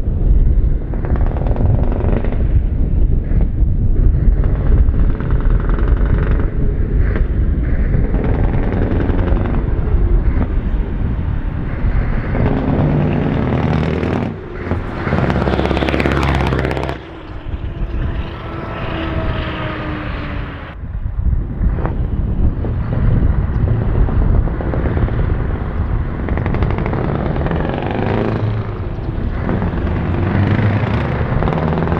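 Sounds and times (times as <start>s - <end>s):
truck diesel engine revving: 12.0s - 20.8s, 26.3s - 31.9s.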